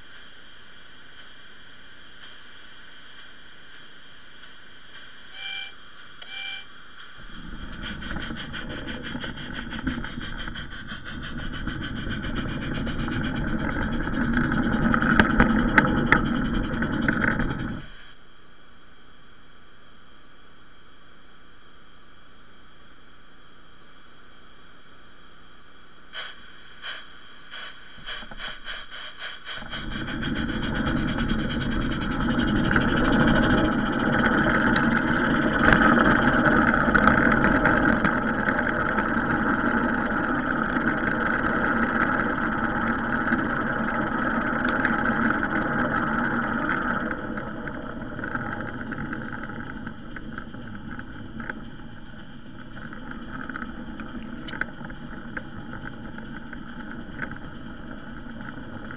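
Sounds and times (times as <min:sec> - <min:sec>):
wheels rolling on rail: 0:00.0 - 0:18.2, 0:26.2 - 0:58.9
model train clicks: 0:07.0 - 0:17.9, 0:26.2 - 0:58.9.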